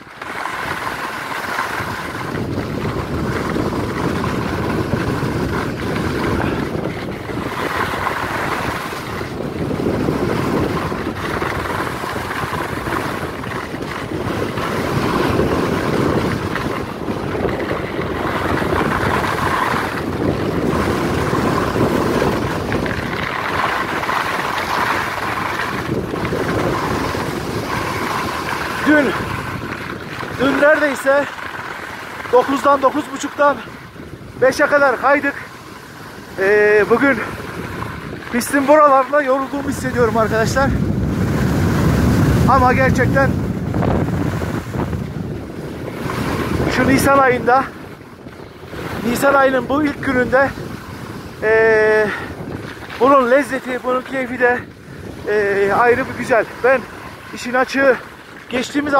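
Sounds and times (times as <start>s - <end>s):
wind rushing over microphone: 0.0s - 58.9s
skis hissing over snow: 0.1s - 47.8s, 48.6s - 58.9s.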